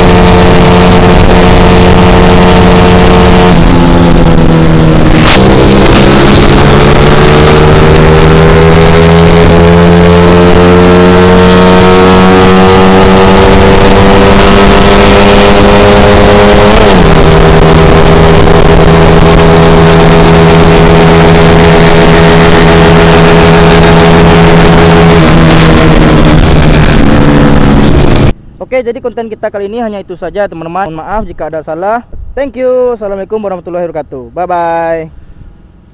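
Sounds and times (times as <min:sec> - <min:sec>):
motorcycle engine at high revs: 0:00.0 - 0:28.4.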